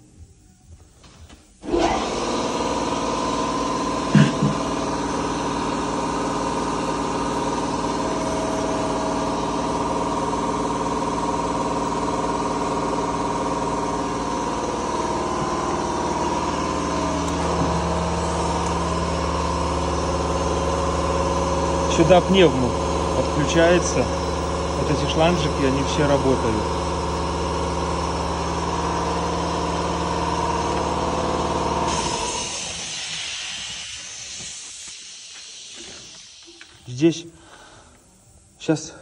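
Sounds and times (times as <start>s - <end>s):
machine motors whining: 1.0s - 38.6s
deep hum: 4.1s - 32.9s.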